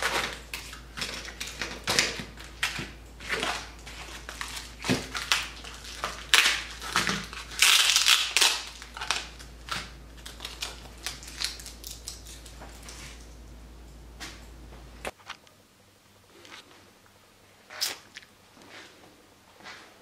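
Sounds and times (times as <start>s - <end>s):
plastic bags crinkling: 0.0s - 13.4s.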